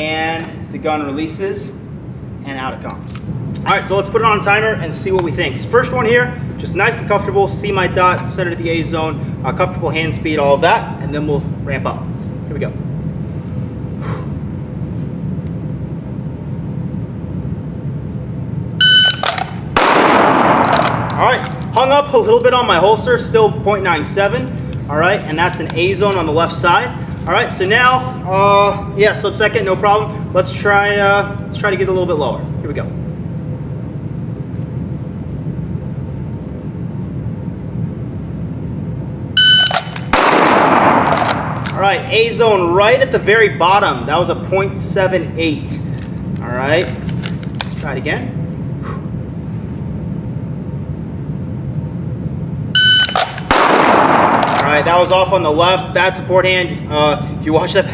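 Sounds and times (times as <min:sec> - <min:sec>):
ventilation system rumble: 0:00.0 - 0:57.9
shot timer beep: 0:18.8 - 0:19.3, 0:39.4 - 0:40.0, 0:52.8 - 0:53.3.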